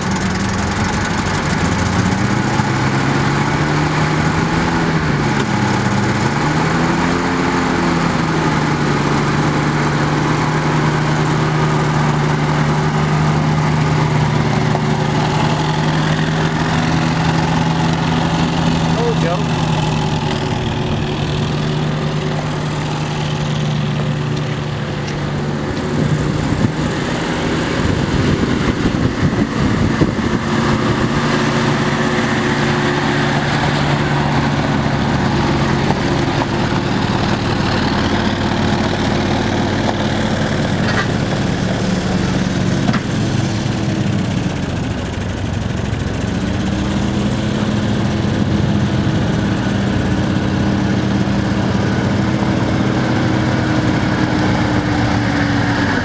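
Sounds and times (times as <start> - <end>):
car engine running: 0.0 - 56.0
tyres crunching on gravel: 11.6 - 27.6, 31.8 - 43.6.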